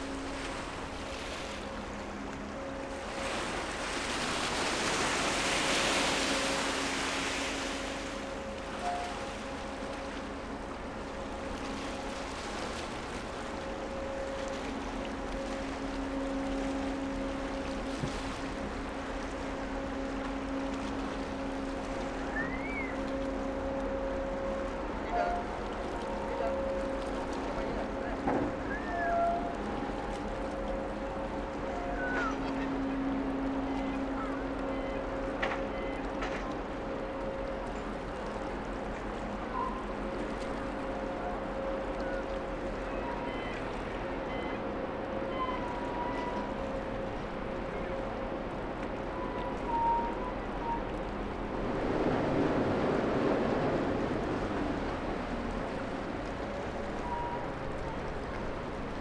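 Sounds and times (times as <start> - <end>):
ship engines droning: 0.0 - 59.0
water washing and gurgling: 0.0 - 59.0
faint high tones: 28.5 - 30.0, 31.6 - 36.2.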